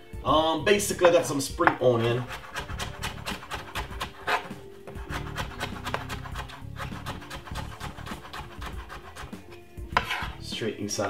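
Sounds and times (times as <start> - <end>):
knife chopping on wooden board: 1.6 - 10.4.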